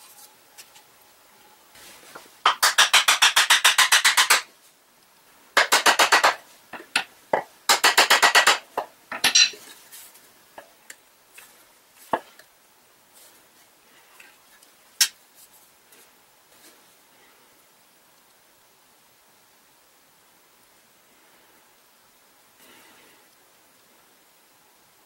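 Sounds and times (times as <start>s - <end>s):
metal hammer tapping wood: 2.5s - 4.4s, 5.6s - 9.5s.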